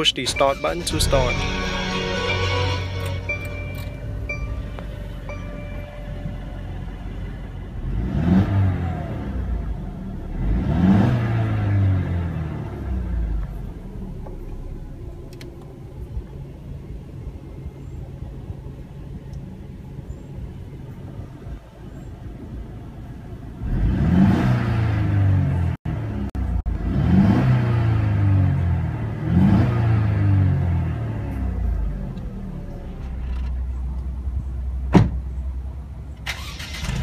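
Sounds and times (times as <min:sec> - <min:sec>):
car engine idling and revving: 0:00.0 - 0:37.0.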